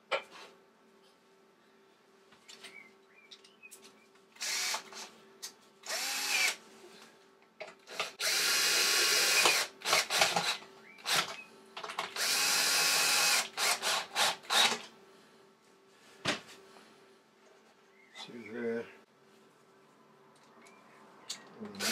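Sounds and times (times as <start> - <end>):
cordless drill bursts: 4.4 - 5.0, 5.8 - 6.6, 7.9 - 11.4, 12.2 - 14.8.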